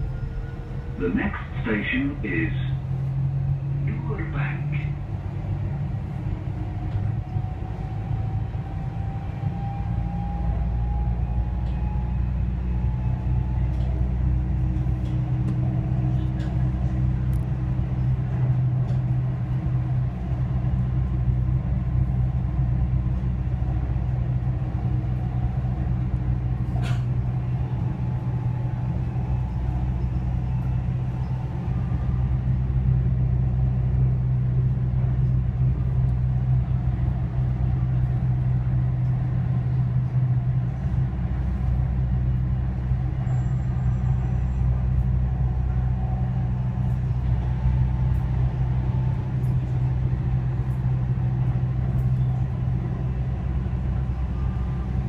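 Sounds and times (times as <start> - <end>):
train rumble and motor hum: 0.0 - 55.0.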